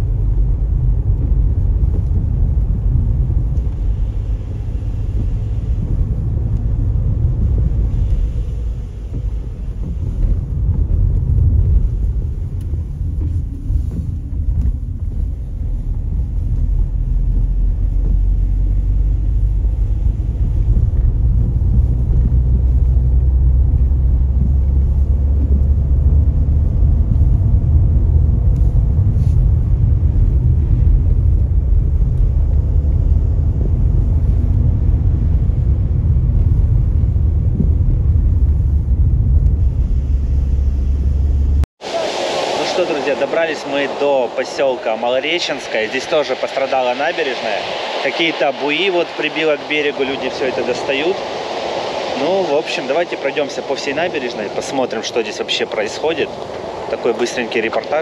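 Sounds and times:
car engine rumble: 0:00.0 - 0:58.0
tyres on wet road: 0:00.0 - 0:58.0.

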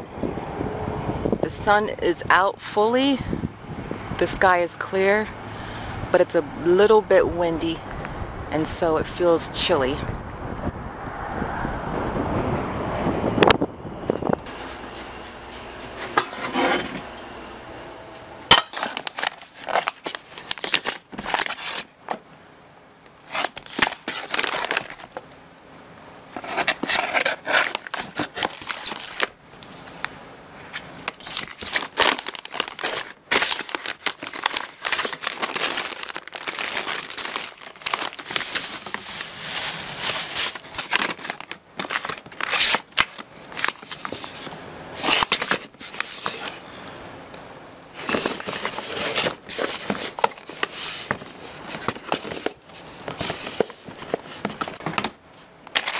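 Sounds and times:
food pouches crinkling: 0:18.5 - 0:21.9, 0:23.3 - 0:25.2, 0:26.4 - 0:29.3, 0:31.0 - 0:47.0, 0:48.0 - 0:55.0, 0:55.7 - 0:55.9.

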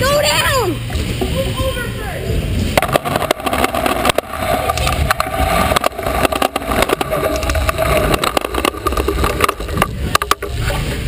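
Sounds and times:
scooter clacks and rattles: 0:02.8 - 0:10.7
scooter wheels rolling on concrete: 0:02.8 - 0:11.0.

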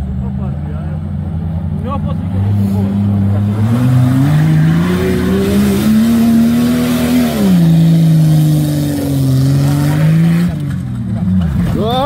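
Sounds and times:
suv engine revving under load: 0:01.5 - 0:11.8.

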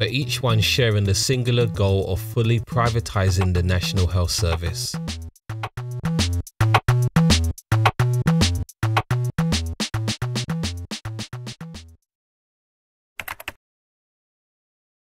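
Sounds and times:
electronic music with drum-machine beat: 0:02.8 - 0:12.0.

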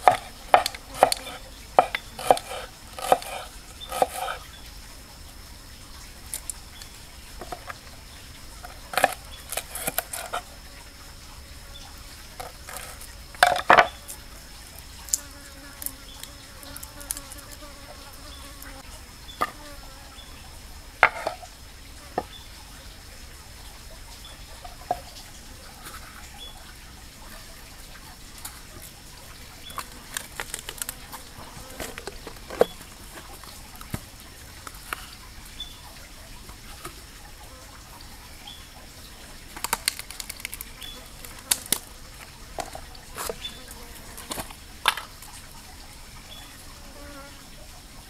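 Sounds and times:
high insect drone: 0:00.0 - 0:35.8.

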